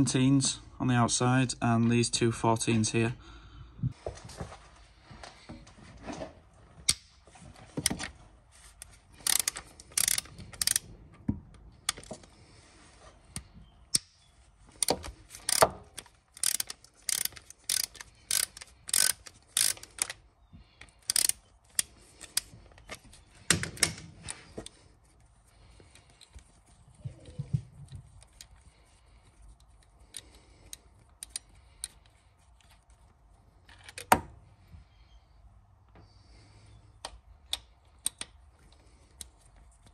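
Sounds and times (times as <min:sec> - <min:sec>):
ratchet wrench clicking: 0:09.2 - 0:10.9, 0:14.8 - 0:20.2, 0:20.8 - 0:22.5.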